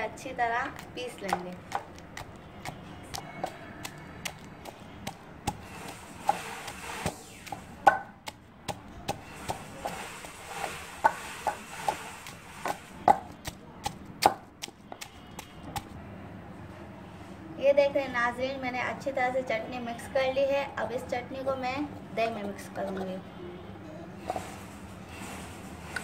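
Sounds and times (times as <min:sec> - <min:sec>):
pestle pounding in mortar: 0:00.7 - 0:15.9.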